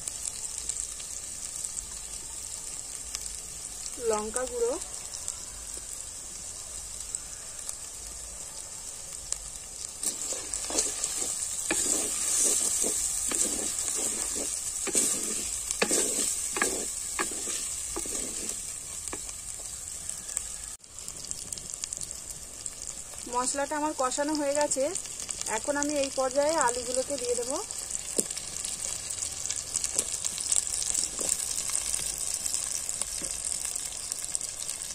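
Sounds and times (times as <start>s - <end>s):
masala sizzling in oil: 0.0s - 34.9s
spatula scraping and stirring: 10.0s - 19.7s, 30.9s - 32.0s.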